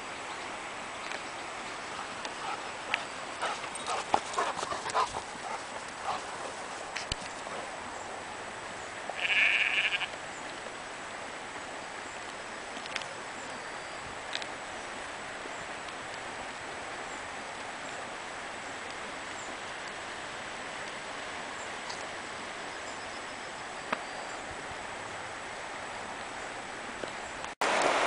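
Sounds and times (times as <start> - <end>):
sheep bleating: 9.2 - 10.2.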